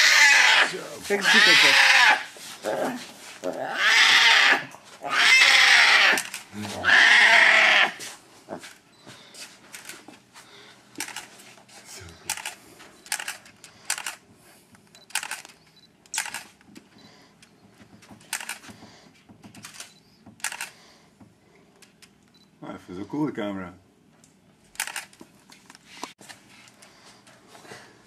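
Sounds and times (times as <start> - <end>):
camera shutter clicking: 12.3 - 14.2, 15.0 - 16.5, 19.6 - 20.8, 24.8 - 25.1.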